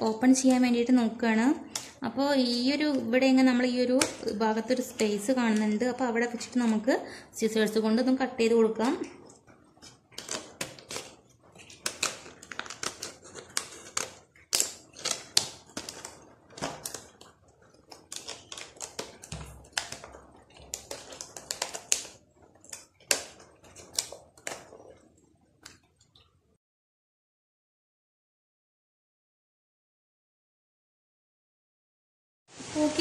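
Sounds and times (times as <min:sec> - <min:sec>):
scissors cutting plastic: 0:01.7 - 0:06.8, 0:08.8 - 0:25.8.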